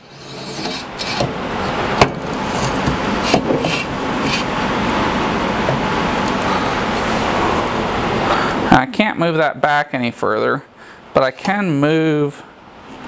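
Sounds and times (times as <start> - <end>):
steady rushing noise: 0.8 - 8.9.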